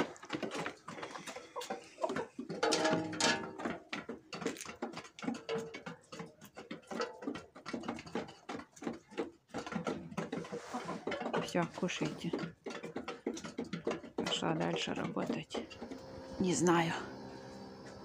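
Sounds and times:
hens pecking on metal tray: 0:00.0 - 0:18.0.

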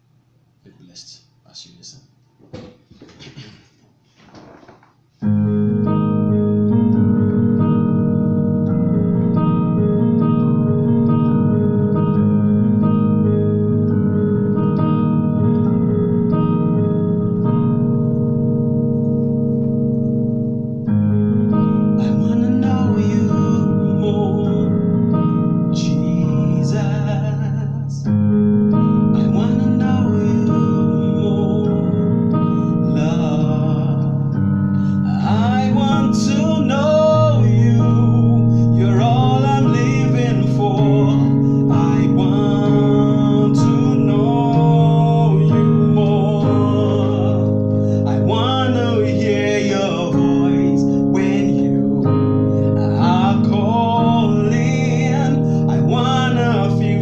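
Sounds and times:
electronic keyboard chords: 0:05.2 - 0:57.0
man singing: 0:22.0 - 0:28.2, 0:29.2 - 0:34.3, 0:34.9 - 0:57.0.

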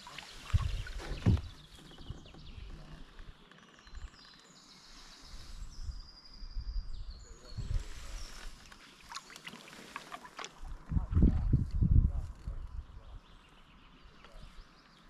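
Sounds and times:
paddle strokes in water: 0:00.0 - 0:03.7, 0:07.8 - 0:11.6
songbirds singing: 0:00.0 - 0:15.0.

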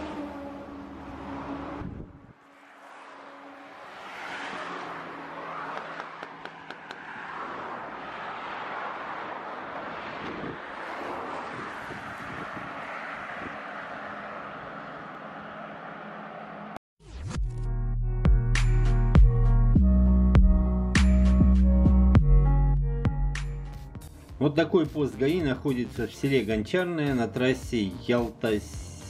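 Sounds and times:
tyres and wind rushing: 0:00.0 - 0:16.8.

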